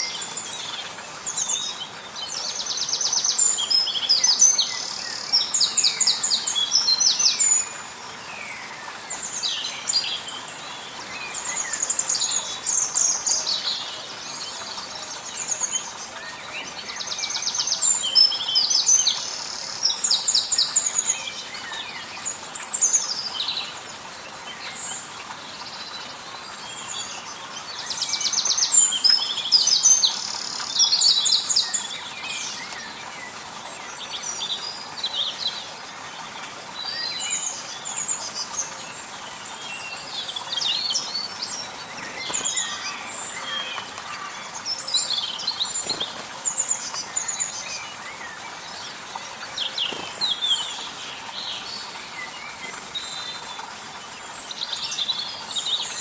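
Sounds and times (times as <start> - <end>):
songbird singing trills: 36.8 - 53.9.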